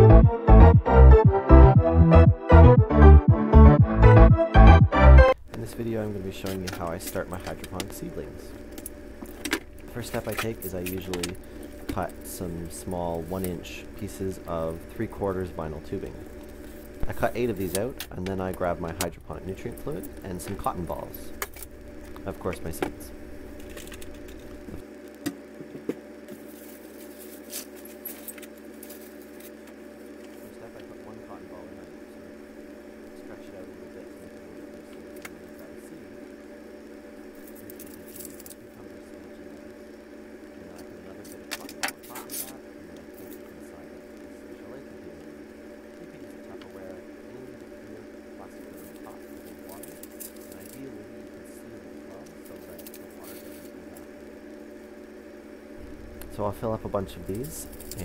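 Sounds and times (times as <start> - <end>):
steady low hum: 0.0 - 58.0
rustling and crinkling of small items: 25.6 - 30.6.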